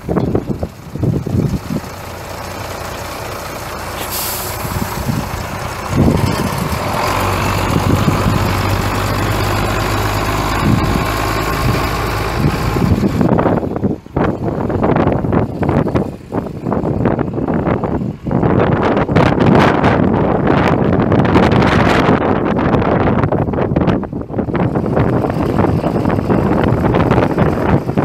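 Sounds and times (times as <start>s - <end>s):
wind on microphone: 0.0s - 2.5s, 3.9s - 28.0s
diesel engine running: 0.0s - 28.0s
brief high hiss: 4.0s - 4.8s.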